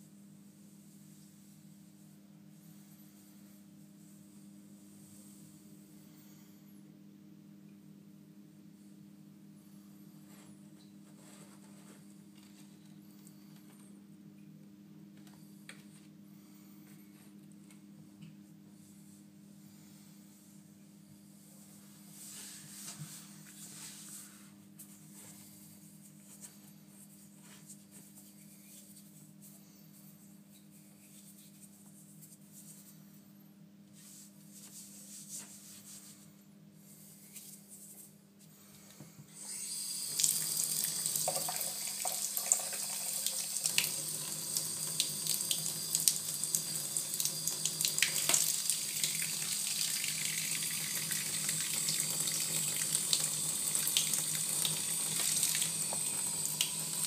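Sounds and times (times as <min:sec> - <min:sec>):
faint rubbing sounds: 0:00.0 - 0:06.0, 0:09.8 - 0:13.8, 0:18.4 - 0:38.8
low steady hum: 0:00.0 - 0:57.0
water running into bath: 0:39.7 - 0:57.0.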